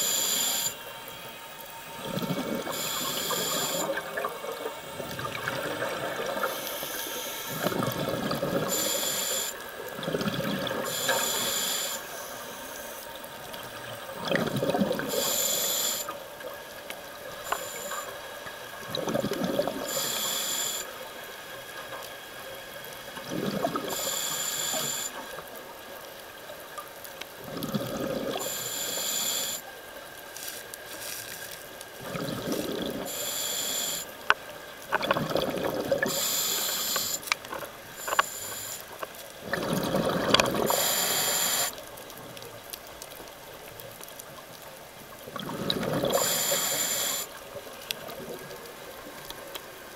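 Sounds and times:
regulator hiss on inhale: 0.0s - 9.8s, 10.7s - 14.1s, 15.0s - 16.4s, 17.2s - 18.8s, 19.6s - 23.1s, 23.8s - 25.4s, 27.8s - 29.8s, 32.5s - 34.4s, 35.9s - 42.4s, 46.0s - 47.6s
rush of bubbles: 10.0s - 11.3s, 14.2s - 15.2s, 18.8s - 19.9s, 23.2s - 24.1s, 27.4s - 28.5s, 32.0s - 33.1s, 35.0s - 36.3s, 39.4s - 41.0s, 45.2s - 46.6s.

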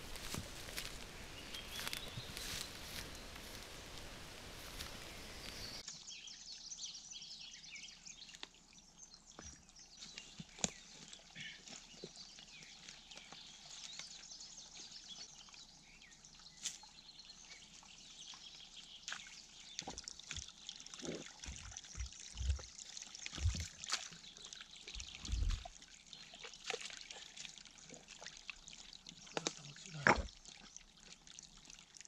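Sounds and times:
water trickling: 0.0s - 5.8s, 7.9s - 32.0s
dull low thuds: 25.0s - 25.7s.

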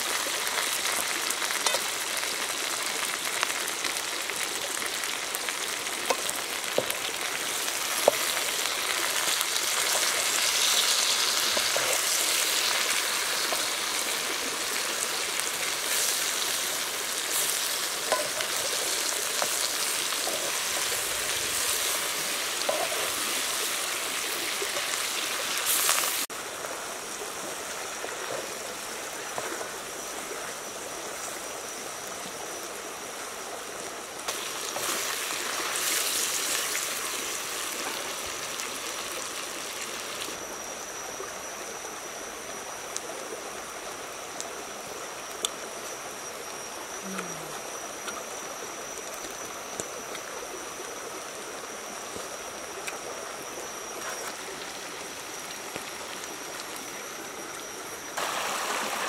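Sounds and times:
stream water running over rocks: 0.0s - 59.0s
thin steady high tone: 26.8s - 59.0s.

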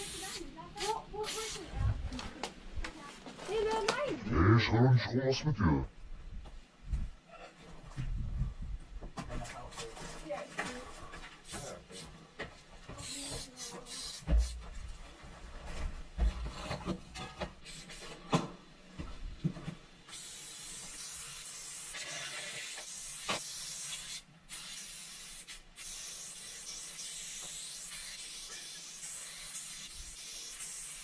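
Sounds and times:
spray paint can hissing: 0.0s - 1.7s, 13.0s - 14.6s, 17.6s - 18.1s, 20.1s - 31.0s.

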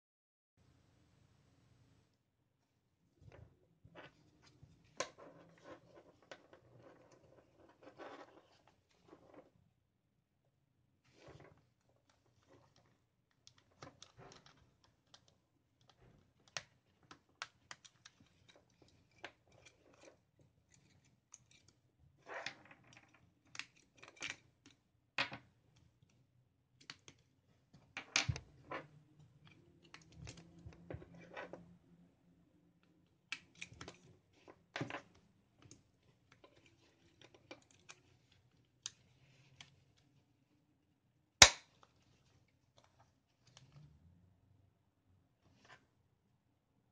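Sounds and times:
sharp plastic snap: 41.4s - 41.7s.

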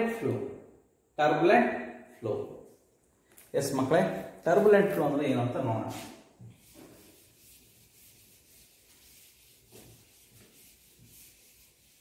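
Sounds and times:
duster rubbing a chalkboard: 5.8s - 12.0s.

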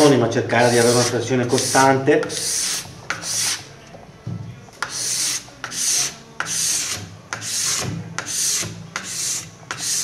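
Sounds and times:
scraper rasping on ski base: 0.6s - 3.6s.

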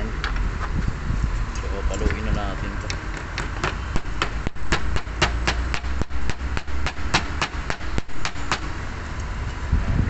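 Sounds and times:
hammer striking metal: 3.6s - 8.7s.

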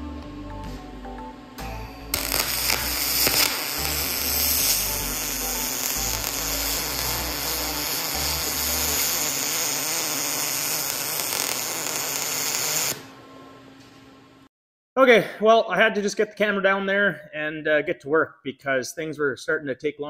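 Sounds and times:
welding arc crackling hiss: 2.0s - 13.1s.

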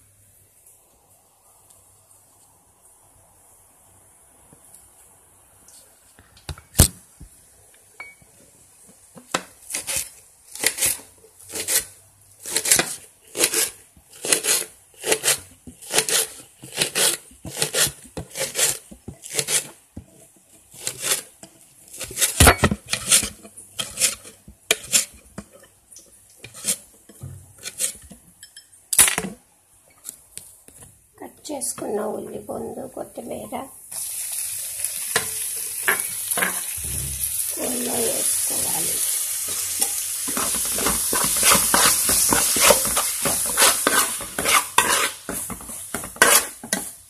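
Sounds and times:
metal utensil scraping a dish: 20.8s - 25.8s, 26.4s - 28.6s, 39.8s - 46.9s.

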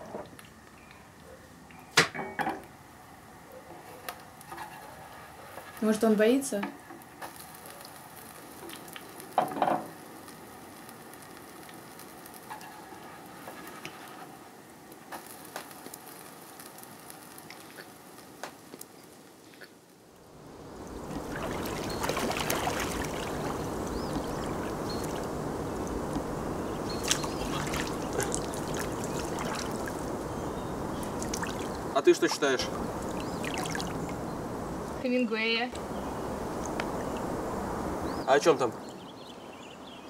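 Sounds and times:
feet splashing in pond water: 21.1s - 25.3s, 26.9s - 30.0s, 31.2s - 31.7s, 33.4s - 34.0s.

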